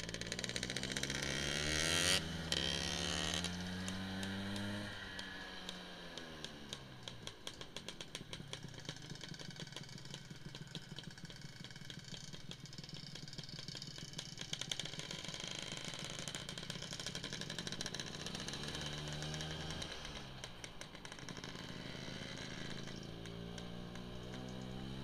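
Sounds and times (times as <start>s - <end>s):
road and wind noise: 0.0s - 9.1s
scooter engine running: 0.0s - 25.0s.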